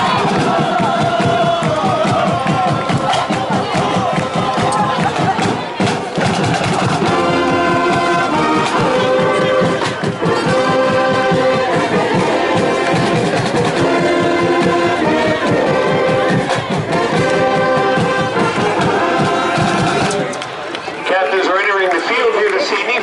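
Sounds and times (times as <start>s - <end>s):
steady drum beat: 0.0s - 20.3s
brass holding loud chords: 6.9s - 20.2s.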